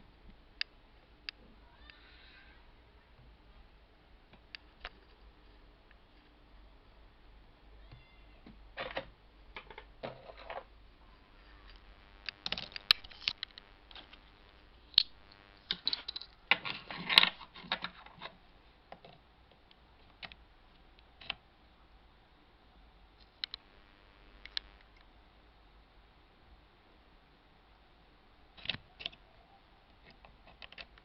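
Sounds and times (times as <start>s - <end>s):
small objects clicking on desk: 11.7s - 14.2s, 15.0s - 18.4s.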